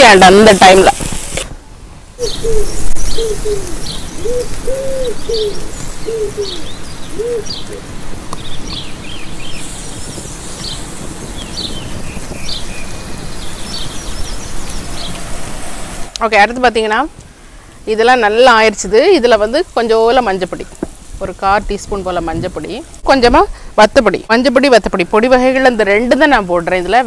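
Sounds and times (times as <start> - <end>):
pigeon cooing: 2.2 - 7.9
small birds chirping: 2.2 - 15.4.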